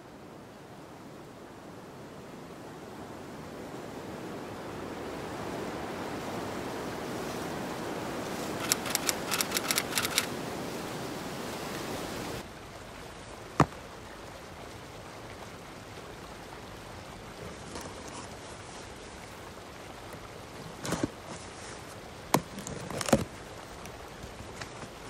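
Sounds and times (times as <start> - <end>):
outdoor background: 0.0 - 25.0
wind-like rushing noise: 0.4 - 12.5
sharp crackling clicks: 8.6 - 10.3.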